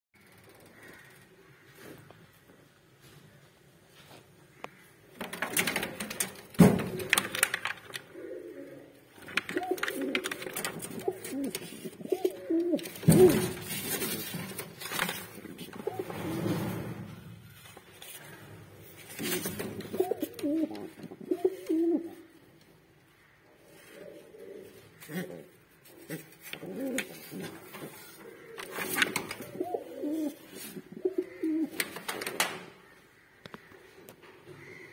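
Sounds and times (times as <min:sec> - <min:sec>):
pigeons cooing: 0:06.9 - 0:16.9, 0:18.0 - 0:22.4, 0:23.2 - 0:32.0
sharp rustles or knocks: 0:12.6 - 0:18.2.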